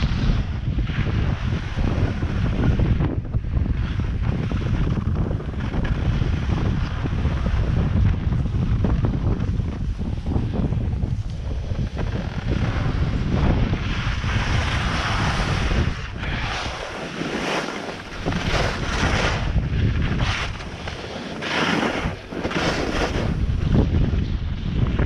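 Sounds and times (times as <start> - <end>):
skis scraping snow: 0.0 - 24.8
wind buffeting microphone: 0.0 - 25.0.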